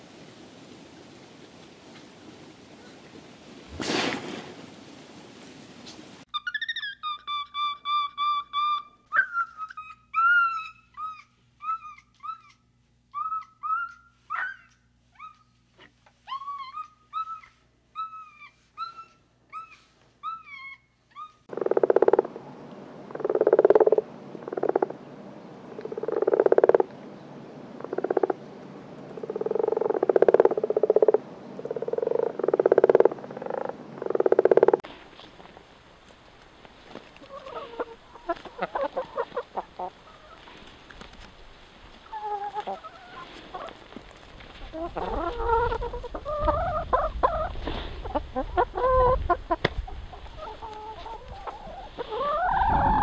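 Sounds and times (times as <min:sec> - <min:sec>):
monkeys chirping: 0:06.3 - 0:12.6, 0:13.2 - 0:15.4
frog croaking: 0:21.5 - 0:22.4, 0:23.1 - 0:25.0, 0:25.8 - 0:26.9, 0:27.8 - 0:28.4, 0:29.2 - 0:34.8.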